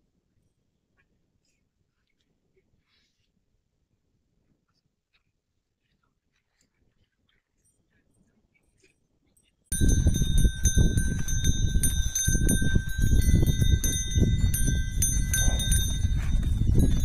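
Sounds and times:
cattle grazing and shuffling: 9.7 - 17.0
high-pitched ringing tones: 9.7 - 17.0.

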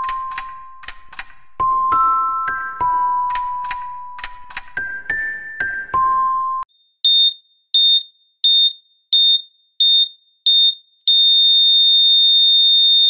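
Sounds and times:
heart monitor beeping: 6.7 - 13.0.

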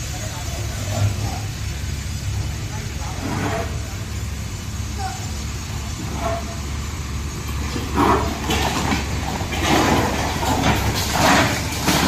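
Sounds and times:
diesel engine running: 0.0 - 12.0
debris rattling and crashing: 7.4 - 12.0.

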